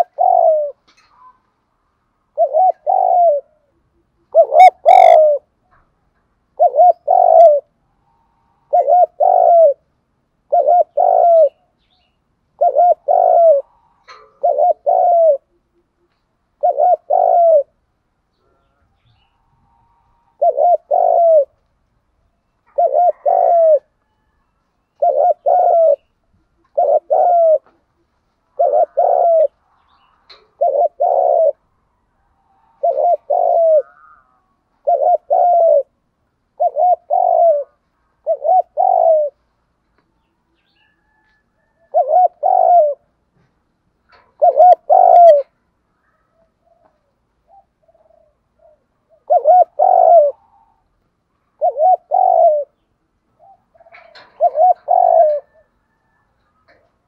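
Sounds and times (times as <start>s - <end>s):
dove cooing: 0.0s - 1.5s, 2.2s - 5.9s, 6.5s - 11.8s, 12.5s - 39.4s, 40.2s - 43.2s, 44.1s - 57.0s.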